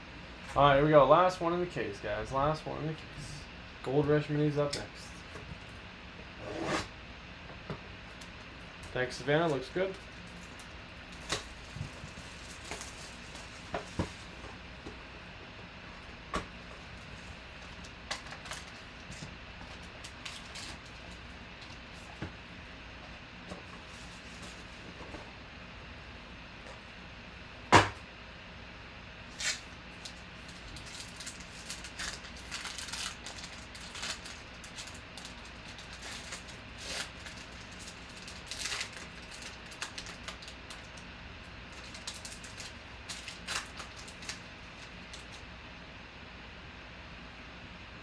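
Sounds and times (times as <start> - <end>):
foil wrapper crinkling: 9.4 - 14.4, 16.9 - 21.8, 29.3 - 41.0, 41.6 - 45.4.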